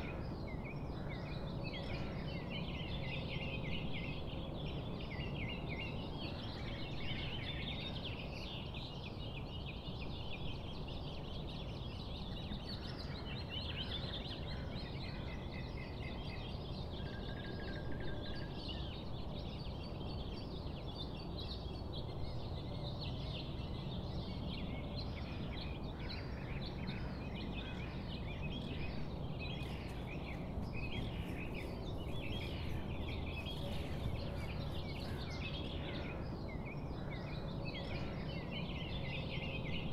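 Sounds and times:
birds chirping: 15.1 - 39.9.

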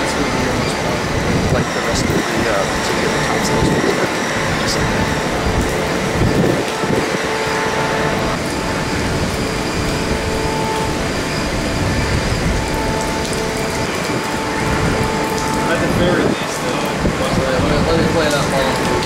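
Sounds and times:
hurricane wind and rain: 0.0 - 19.0.

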